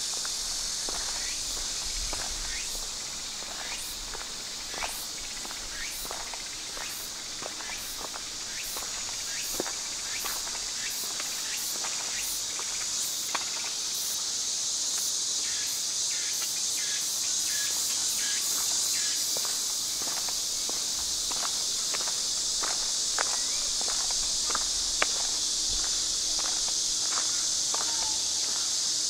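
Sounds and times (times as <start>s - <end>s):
footsteps on walkway: 0.0s - 13.8s, 17.5s - 29.0s
insects droning: 0.0s - 29.0s.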